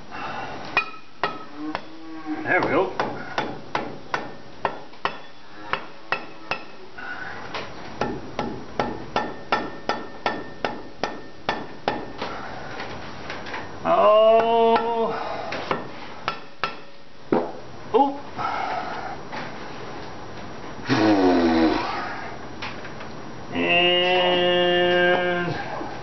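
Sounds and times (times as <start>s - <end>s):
mallet tapping metal hub: 8.0s - 12.2s
person humming: 13.8s - 15.2s, 20.9s - 22.0s, 23.5s - 25.8s.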